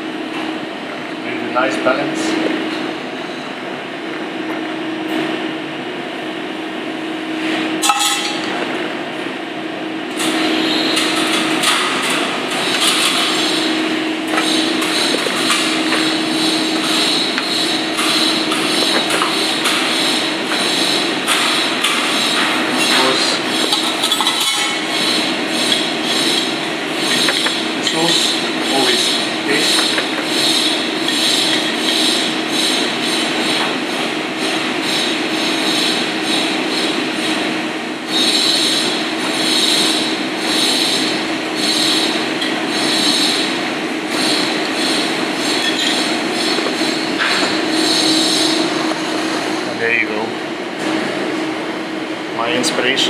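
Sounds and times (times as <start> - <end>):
ventilation hum: 0.0 - 53.0
utensils clinking on steel bowl: 7.8 - 8.6, 22.8 - 25.0, 45.5 - 46.1.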